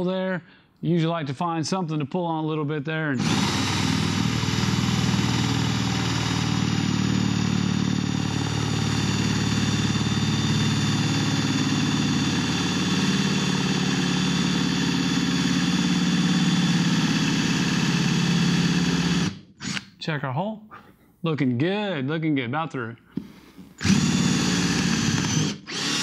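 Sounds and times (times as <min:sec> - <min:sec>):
cordless drill boring: 0:03.2 - 0:19.9, 0:23.8 - 0:26.0.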